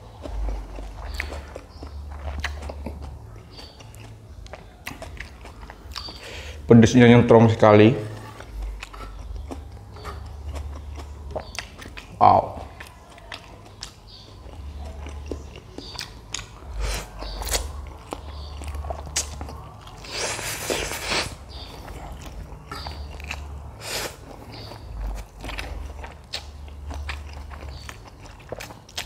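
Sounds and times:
person chewing noodles: 0.0 - 6.7, 8.1 - 29.0
wet mouth clicks: 12.8 - 24.7.

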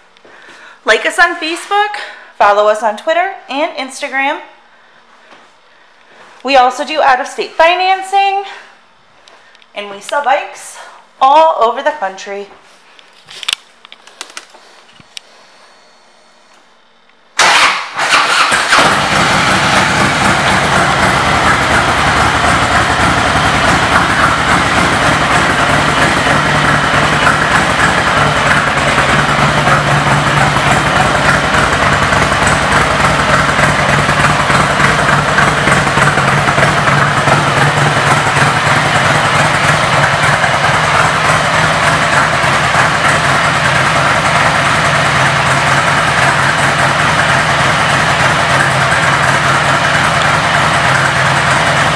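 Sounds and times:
motorcycle engine starting and idling: 17.4 - 51.9.

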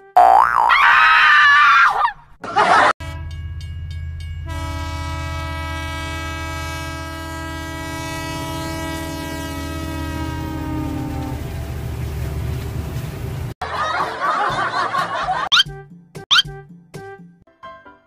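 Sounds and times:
cartoon boing: 0.0 - 0.9
locomotive horn blast: 3.0 - 3.5, 4.4 - 11.9
electric locomotive humming: 3.0 - 13.6.

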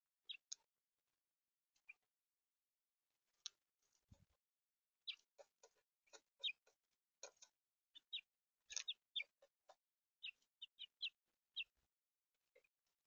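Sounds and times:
finches chirping: 0.3 - 0.6, 5.0 - 11.8.

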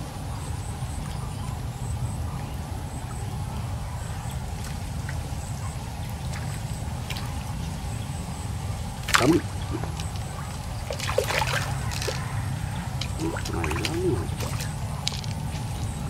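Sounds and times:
steady low rumble: 3.0 - 16.0
water splash: 9.0 - 12.4, 13.0 - 15.9.

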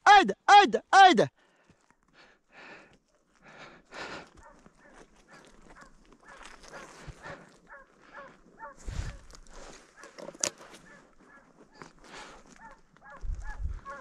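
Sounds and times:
distant hound yelping: 7.7 - 8.8, 12.6 - 14.0.

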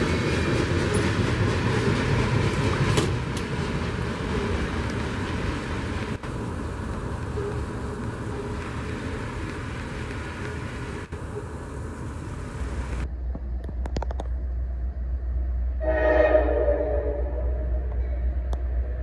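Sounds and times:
road traffic noise: 0.0 - 19.0
locomotive air horn: 15.8 - 18.0.

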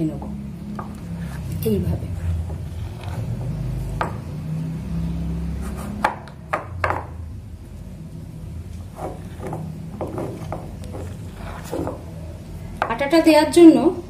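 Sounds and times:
spoon stirring sticky dough: 8.6 - 12.2.

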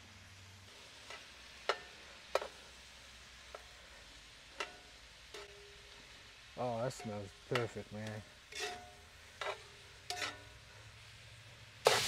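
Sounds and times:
vegetables sizzling: 0.0 - 12.0
metal tongs clinking on skillet: 1.0 - 2.7, 3.4 - 10.7.

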